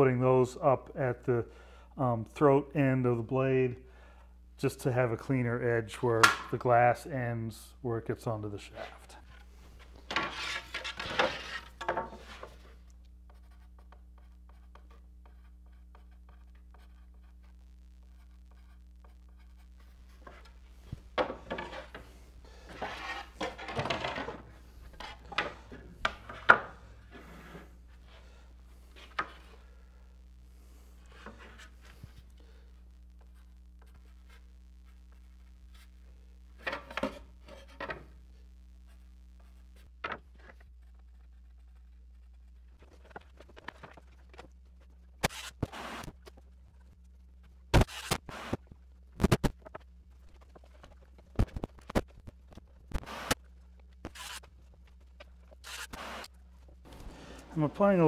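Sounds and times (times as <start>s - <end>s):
steady low hum: 0.1s - 58.0s
wooden paddles rubbing and knocking: 8.8s - 12.7s, 21.2s - 29.6s.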